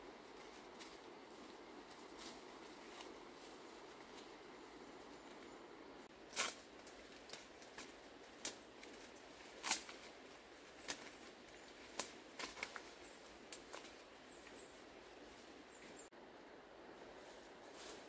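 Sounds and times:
leaves snapping and rustling: 6.3s - 10.2s, 10.8s - 12.9s, 13.5s - 14.0s.

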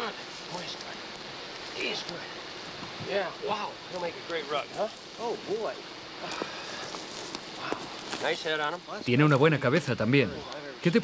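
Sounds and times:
steady background hiss: 0.0s - 11.0s
rustling on forest litter: 3.9s - 9.0s.

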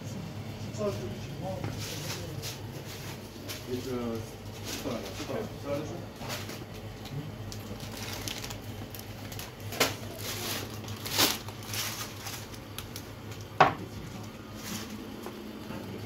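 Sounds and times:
plastic packets rustling: 6.3s - 13.5s
items knocking on wooden counter: 13.6s - 13.8s.

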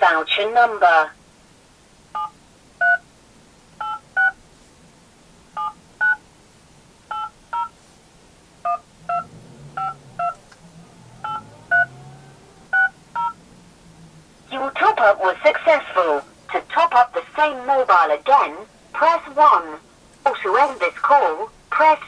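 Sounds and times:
phone keypad beeps: 2.2s - 3.0s, 3.8s - 4.4s, 7.1s - 7.7s, 8.7s - 9.2s, 12.8s - 13.4s.

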